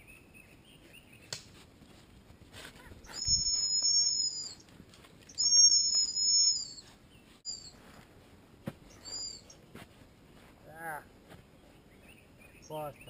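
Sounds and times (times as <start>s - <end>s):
dog training whistle blasts: 3.1s - 4.4s.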